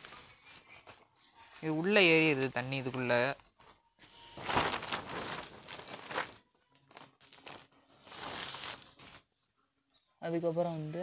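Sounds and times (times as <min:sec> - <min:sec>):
rustling handling noise: 0:03.0 - 0:09.2
footsteps: 0:03.5 - 0:09.1.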